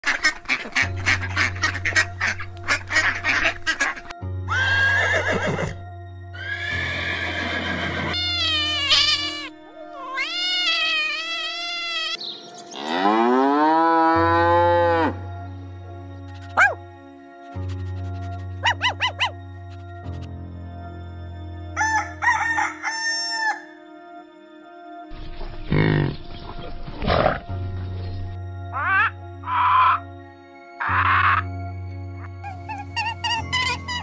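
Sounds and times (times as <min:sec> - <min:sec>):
duck quacking: 0:00.0 - 0:04.2
drawn-out pitched animal calls: 0:06.4 - 0:12.2, 0:17.6 - 0:19.4, 0:32.4 - 0:34.0
cow mooing: 0:12.8 - 0:15.2.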